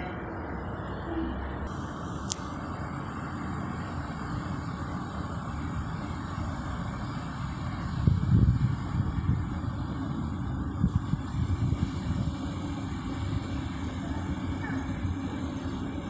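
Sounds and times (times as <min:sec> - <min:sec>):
train rumbling on track: 0:00.0 - 0:16.0
sharp click: 0:02.2 - 0:02.6.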